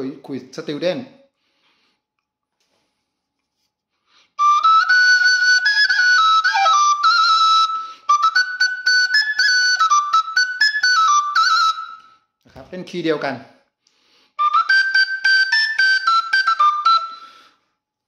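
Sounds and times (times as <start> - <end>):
duct flute melody: 4.4 - 12.2, 14.4 - 17.6.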